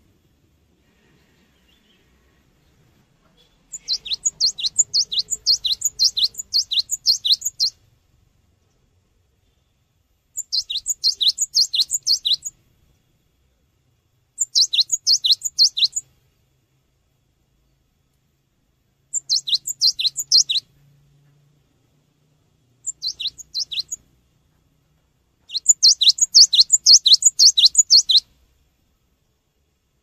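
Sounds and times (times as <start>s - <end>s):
bird singing high notes: 3.7s - 7.8s, 10.4s - 12.5s, 19.2s - 20.6s, 22.9s - 24.0s, 25.5s - 28.2s.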